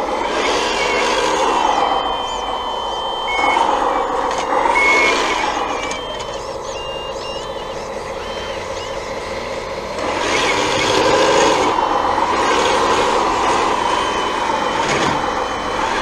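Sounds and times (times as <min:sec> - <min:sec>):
hydraulic pump and motors whining: 0:00.0 - 0:16.0
short high beeps: 0:00.2 - 0:09.1, 0:13.4 - 0:16.0.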